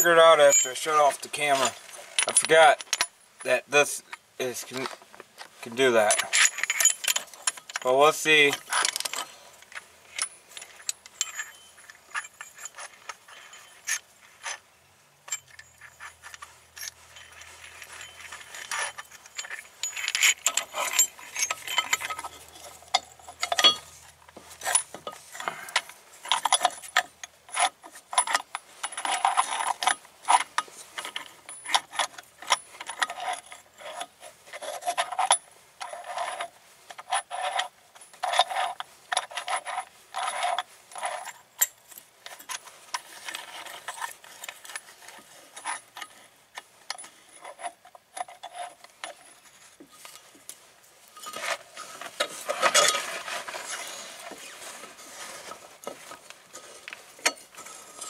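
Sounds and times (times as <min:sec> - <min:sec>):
hand tools clicking and clinking: 0:00.0 - 0:58.0.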